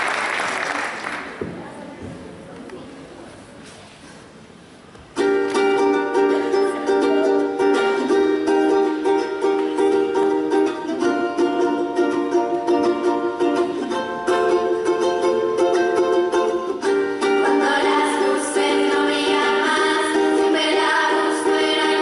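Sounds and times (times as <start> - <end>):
girls vocal group song: 16.8 - 22.0.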